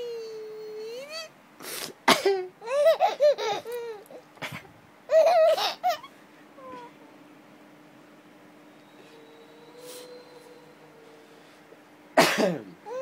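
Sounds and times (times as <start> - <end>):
baby laughing: 2.6 - 6.9.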